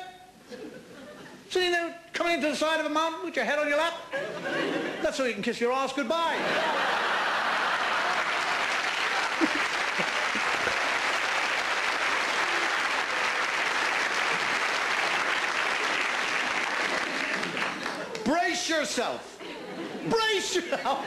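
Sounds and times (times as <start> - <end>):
audience applauding: 7.0 - 18.3.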